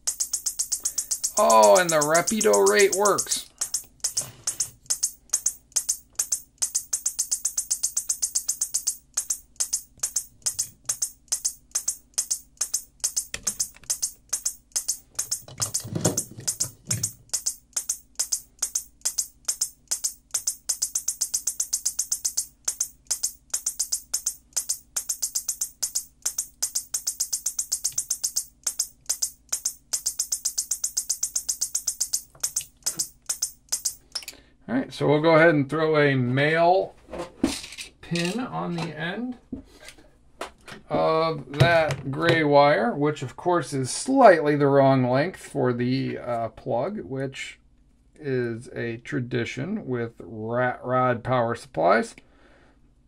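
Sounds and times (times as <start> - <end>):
fast regular clicks: 0.0 - 34.2.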